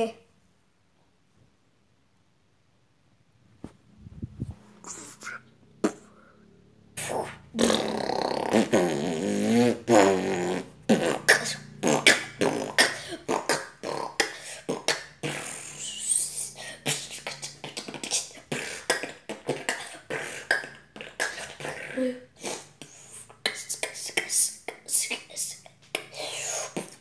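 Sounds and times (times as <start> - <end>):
boy beatboxing: 4.2 - 6.3, 7.0 - 27.0
boy humming: 4.8 - 6.4.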